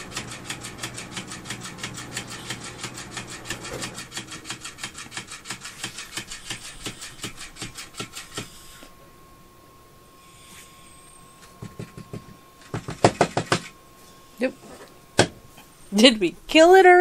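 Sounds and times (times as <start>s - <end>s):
toy fish flapping on wooden floor: 3.6s - 8.7s.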